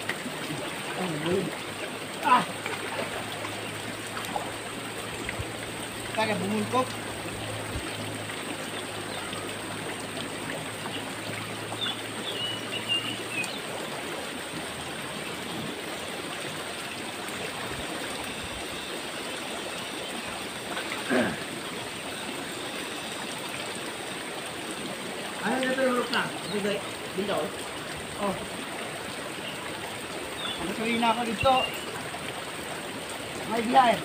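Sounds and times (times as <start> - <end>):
river water rushing: 0.0 - 34.0.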